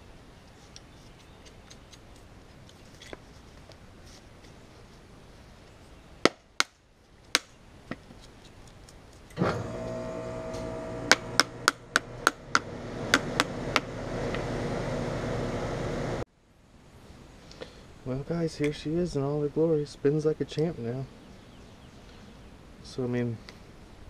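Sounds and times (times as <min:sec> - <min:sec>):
fan motor whirring: 0:09.4 - 0:16.2.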